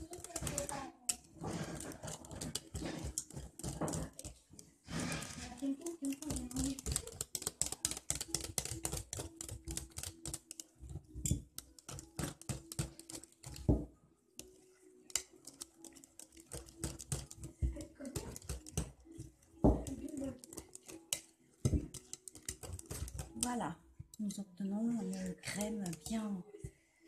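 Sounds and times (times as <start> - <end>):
whisk clicking against glass bowl: 0.0 - 4.4, 5.8 - 13.8, 14.4 - 24.3, 25.0 - 26.4.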